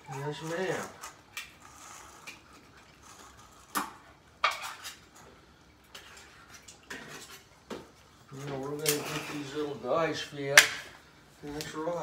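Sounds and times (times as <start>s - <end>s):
kitchenware clinking: 4.4s - 5.2s.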